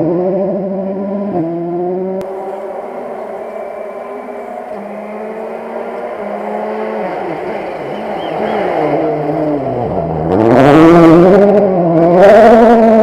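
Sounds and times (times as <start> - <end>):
rally car engine passing: 0.0 - 13.0
bursts of rushing noise: 2.2 - 10.3.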